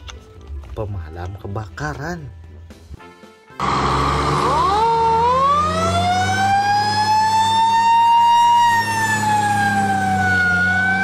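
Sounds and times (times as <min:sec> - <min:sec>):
fire engine siren wailing: 0:03.6 - 0:11.0.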